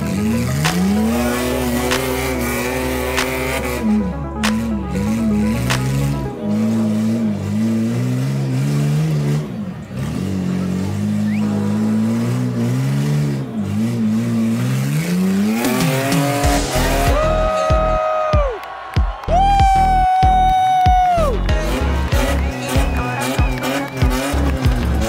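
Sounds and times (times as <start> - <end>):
electronic music heavy beat: 0.0 - 6.4, 15.5 - 25.0
buggy engine revving: 0.0 - 18.1, 19.4 - 25.0.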